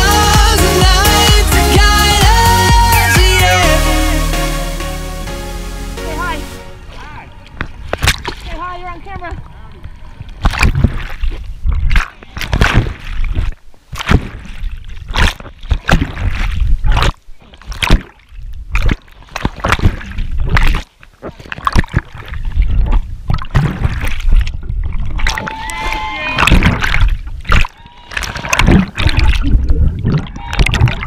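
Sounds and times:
water splashing: 6.1s - 31.0s
muffled underwater rumble: 28.3s - 31.0s.

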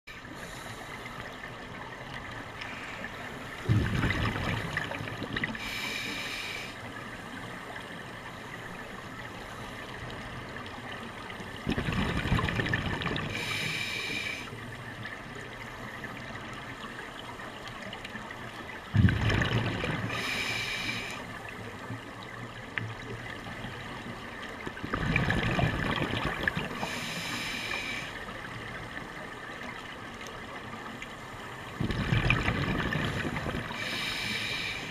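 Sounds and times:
gurgling exhaled bubbles: 3.6s - 5.6s, 11.6s - 13.5s, 18.9s - 20.3s, 24.7s - 26.9s, 31.8s - 34.1s.

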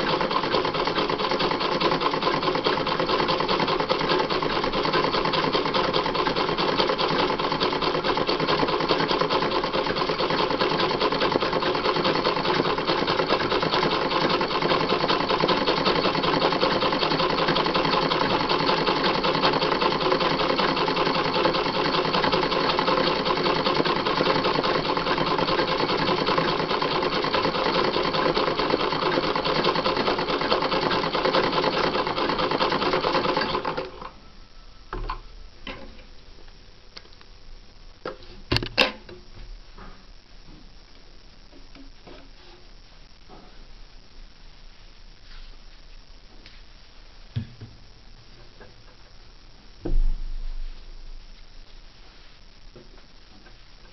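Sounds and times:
sewing machine stitching: 0.0s - 34.2s.

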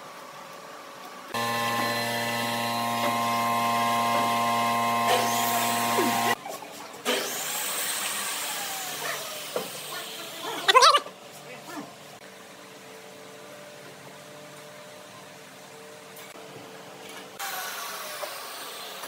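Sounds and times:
softer noisy hum: 0.0s - 6.4s
steady machine hum: 1.3s - 6.4s.

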